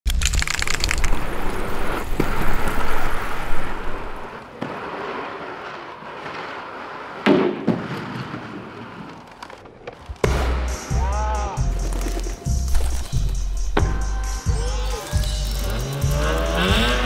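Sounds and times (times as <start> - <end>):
wheels rolling over pavement: 0.2 - 10.3.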